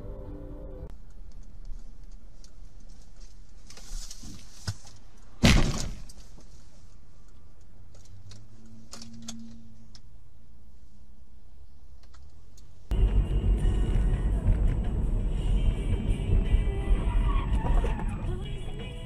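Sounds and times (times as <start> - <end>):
engine and road drone: 0.0 - 2.2, 12.0 - 19.0
car crash impact: 5.4 - 6.2.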